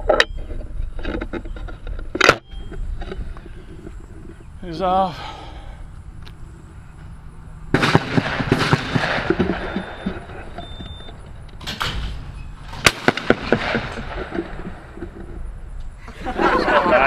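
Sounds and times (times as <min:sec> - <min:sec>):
shotgun shots: 0:07.7 - 0:10.4, 0:11.8 - 0:14.8.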